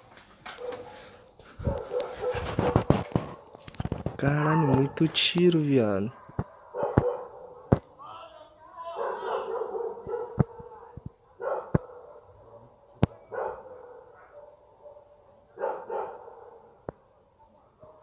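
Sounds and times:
dogs barking: 0:00.5 - 0:03.6, 0:06.1 - 0:07.7, 0:09.0 - 0:10.7, 0:11.3 - 0:16.8.

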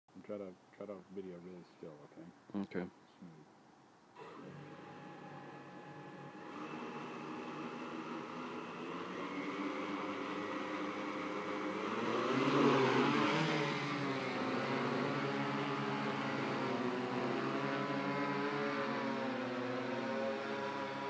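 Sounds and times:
drone motors humming: 0:04.2 - 0:21.0.

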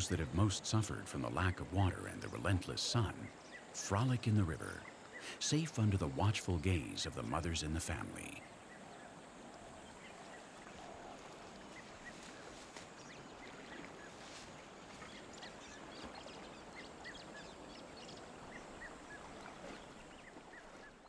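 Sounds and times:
steady hiss: 0:00.0 - 0:09.2
bird calls: 0:00.0 - 0:21.0.

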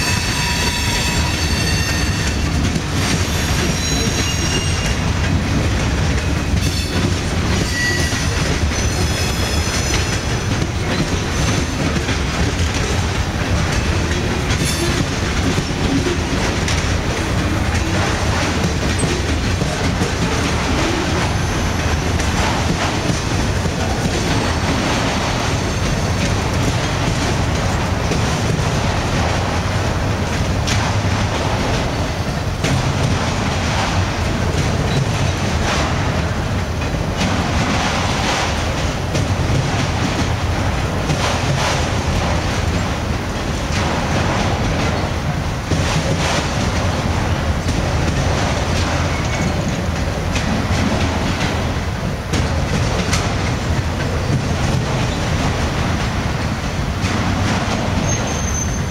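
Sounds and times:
high wheel squeals: 0:00.0 - 0:02.4, 0:07.6 - 0:10.2, 0:58.0 - 0:58.9
freight train rumbling past: 0:00.0 - 0:58.9
wheels clacking over rail joints: 0:00.0 - 0:58.9.

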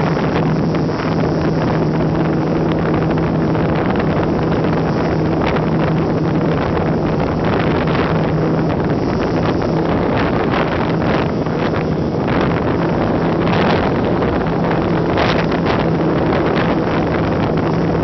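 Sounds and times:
wind rushing over microphone: 0:00.0 - 0:18.0.

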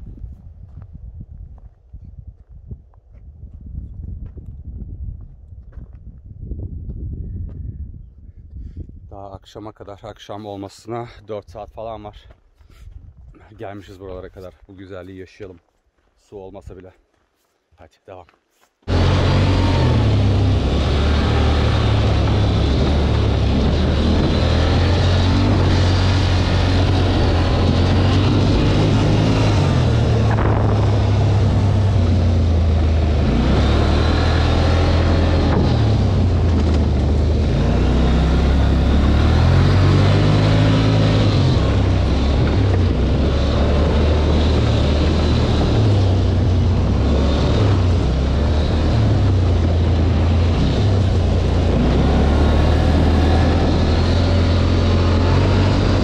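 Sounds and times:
atv engine revving: 0:18.9 - 0:56.0.

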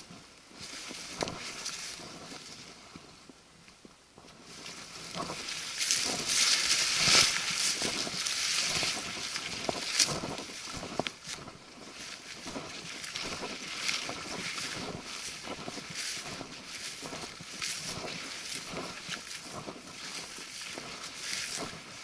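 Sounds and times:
brush rustling and swishing: 0:00.0 - 0:03.3, 0:04.2 - 0:22.0.

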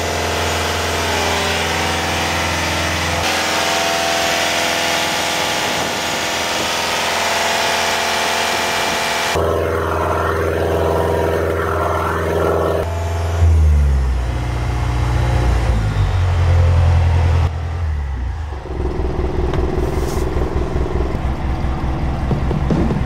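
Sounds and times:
boat diesel engine idling: 0:16.1 - 0:23.0.

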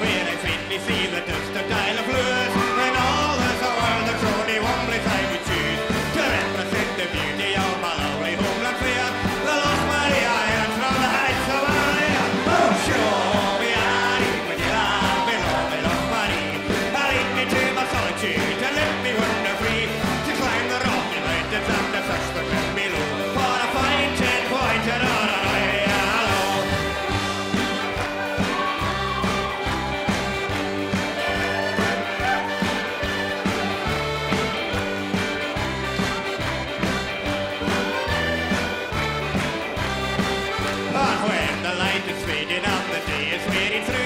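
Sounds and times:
man singing: 0:00.0 - 0:28.5, 0:40.8 - 0:44.0
live band music: 0:00.0 - 0:44.0.

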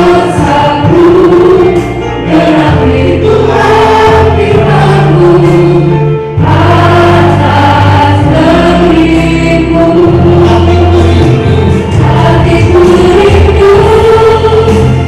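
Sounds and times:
instrumental accompaniment with bass: 0:00.0 - 0:15.0
people singing together: 0:00.0 - 0:15.0.

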